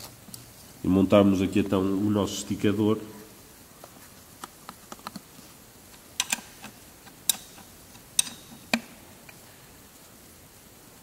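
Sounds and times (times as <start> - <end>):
sharp metallic clicks: 5.9 - 9.4.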